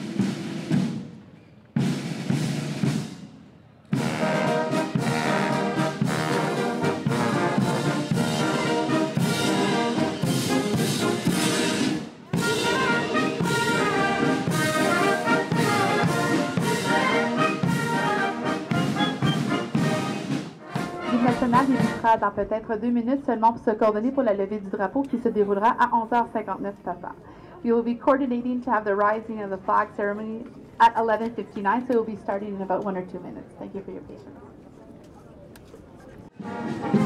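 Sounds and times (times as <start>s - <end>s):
brass band playing a march: 0.0s - 1.2s, 1.8s - 22.3s, 36.4s - 37.0s
drum strokes: 0.0s - 22.1s.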